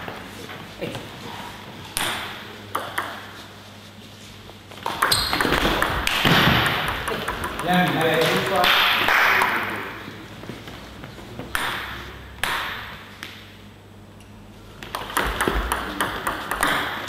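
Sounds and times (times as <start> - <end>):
table tennis ball knocks: 14.9 - 17.0.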